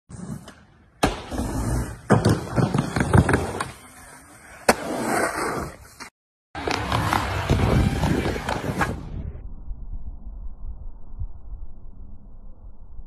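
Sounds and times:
skateboard knocking and clattering: 0:02.0 - 0:03.9.

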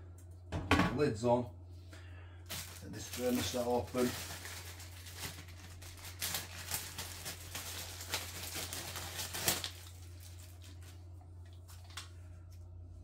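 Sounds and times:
plastic bag crinkling: 0:02.5 - 0:12.2.

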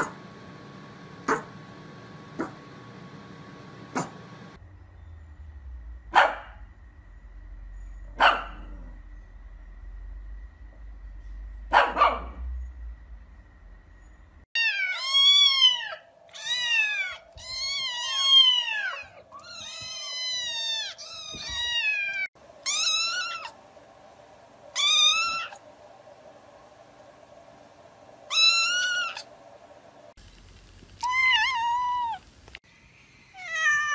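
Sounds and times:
dog barking: 0:00.0 - 0:00.2, 0:01.2 - 0:01.6, 0:02.4 - 0:02.6, 0:03.9 - 0:04.2, 0:06.1 - 0:06.6, 0:08.1 - 0:09.0, 0:11.7 - 0:12.5.

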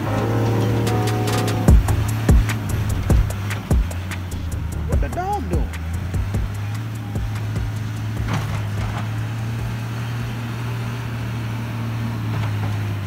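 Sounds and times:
diesel engine droning: 0:00.0 - 0:13.0.

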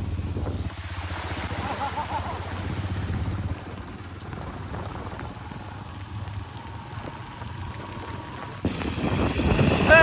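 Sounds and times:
motorcycle engine hum: 0:00.0 - 0:10.0
wet tyres on road: 0:00.0 - 0:10.0
heavy rain hissing: 0:04.6 - 0:10.0.

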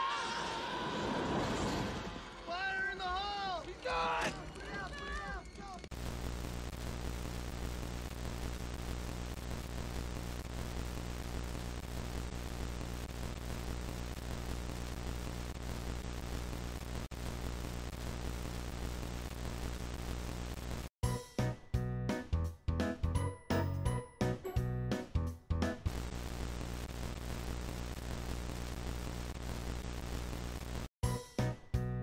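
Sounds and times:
static hiss: 0:05.9 - 0:20.9, 0:25.9 - 0:30.9.

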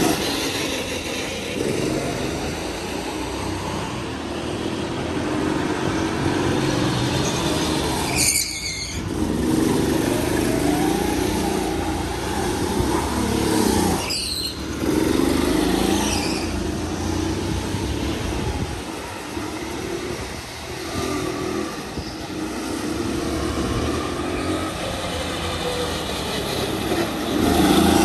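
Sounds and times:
go-kart engine revving: 0:00.0 - 0:28.0
tyre squeal: 0:07.2 - 0:09.2, 0:13.8 - 0:15.0, 0:15.8 - 0:16.8.

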